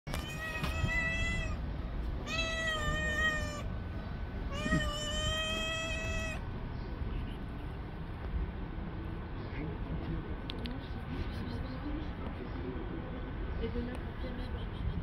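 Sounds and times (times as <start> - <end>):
cat meowing: 0.1 - 3.8, 4.5 - 6.4.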